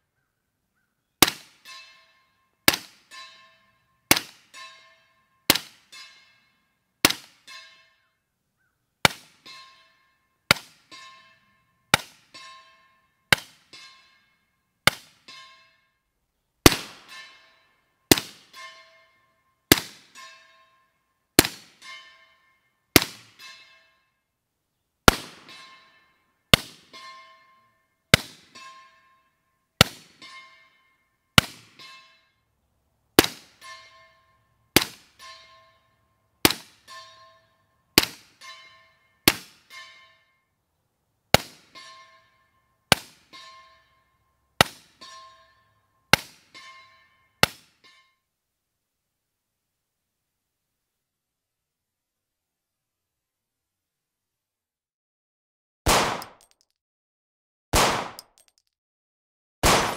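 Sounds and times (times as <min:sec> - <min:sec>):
bullet clanging on steel target: 0:01.2 - 0:08.2, 0:09.1 - 0:16.0, 0:16.7 - 0:24.2, 0:25.1 - 0:32.4, 0:33.2 - 0:40.4, 0:41.4 - 0:48.2, 0:56.2 - 0:56.8, 0:58.1 - 0:58.8
suppressed rifle shots: 0:55.9 - 0:56.4, 0:57.8 - 0:58.3, 0:59.6 - 0:59.9.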